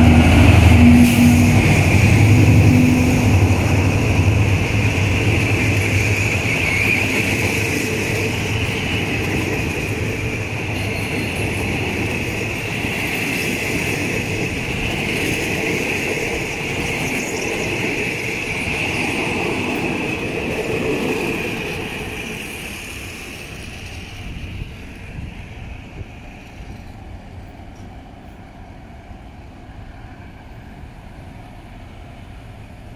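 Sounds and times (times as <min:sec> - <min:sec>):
train coaches rumbling and clattering: 0:00.0 - 0:32.9
faint clicks from train wheels: 0:03.6 - 0:28.7.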